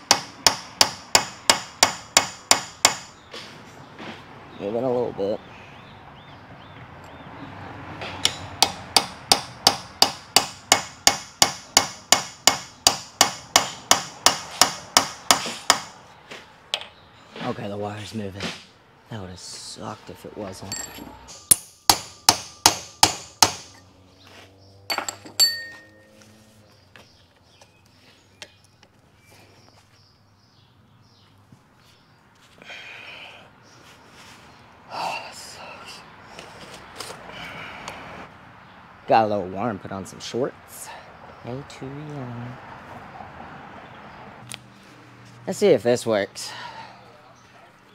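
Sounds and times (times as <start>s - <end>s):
metal tool clicks and taps: 8.1s - 8.5s, 16.7s - 17.0s
metal-on-metal hammer blows: 20.7s - 23.9s.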